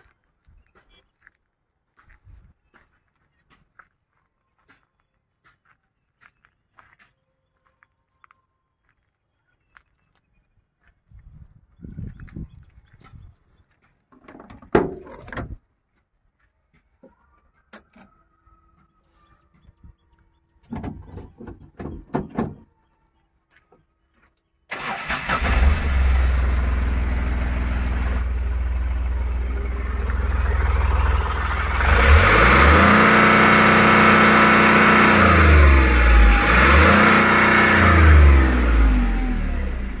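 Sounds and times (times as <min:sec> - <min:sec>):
truck diesel engine revving: 0:24.7 - 0:40.0.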